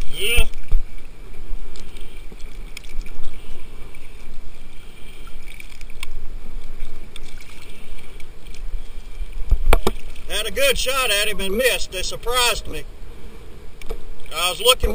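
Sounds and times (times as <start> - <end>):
water sloshing and splashing: 0.0 - 11.8
small clicks: 5.2 - 8.7.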